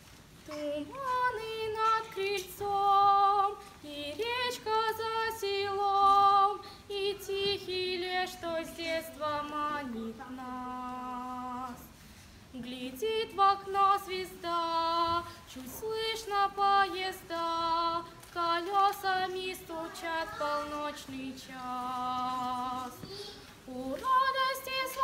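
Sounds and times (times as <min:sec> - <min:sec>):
girl singing unaccompanied: 0:00.4 - 0:25.0.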